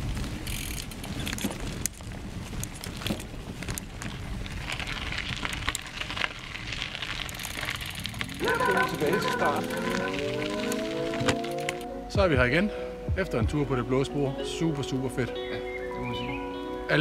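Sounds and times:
bike rattling and clicking: 0:00.0 - 0:11.9
tyres crunching on dirt trail: 0:00.0 - 0:17.0.

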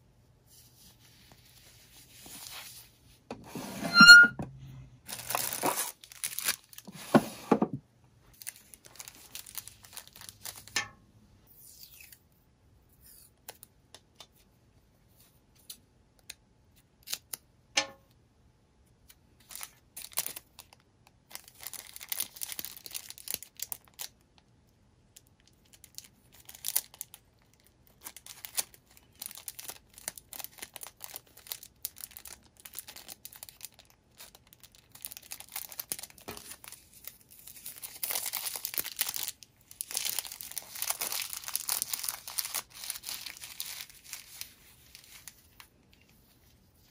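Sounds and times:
packaging crinkling and tearing: 0:05.0 - 0:07.0, 0:08.3 - 0:10.7, 0:19.4 - 0:24.2, 0:25.2 - 0:45.7.

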